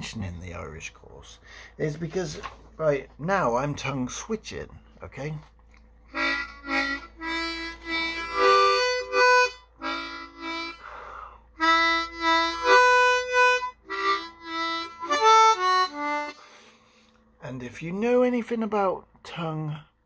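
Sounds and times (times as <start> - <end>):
harmonica melody: 6.1 - 17.2
breathy hiss: 10.8 - 11.5.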